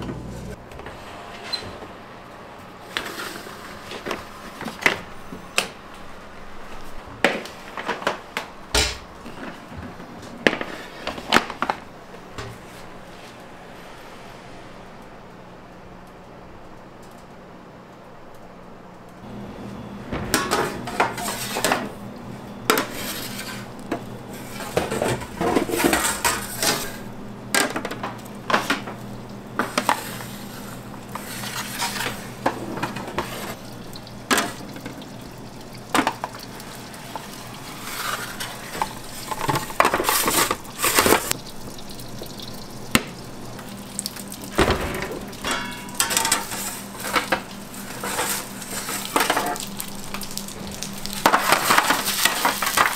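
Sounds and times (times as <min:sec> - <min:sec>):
metal pans clanking and scraping: 0:20.1 - 0:22.0, 0:22.7 - 0:29.0, 0:29.6 - 0:33.6, 0:37.1 - 0:41.4, 0:44.6 - 0:49.7, 0:51.1 - 0:52.9.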